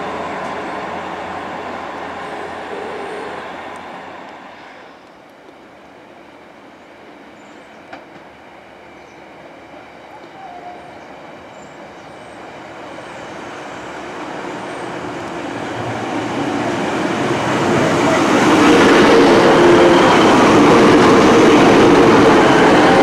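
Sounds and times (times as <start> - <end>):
train wheels on rails: 0.0 - 5.6, 7.4 - 23.0
diesel train engines: 0.0 - 23.0.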